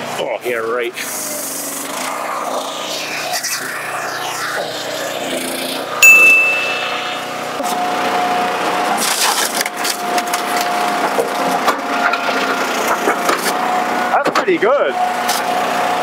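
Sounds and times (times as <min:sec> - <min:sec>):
log splitter machine hum: 0:07.0 - 0:14.2, 0:15.0 - 0:16.0.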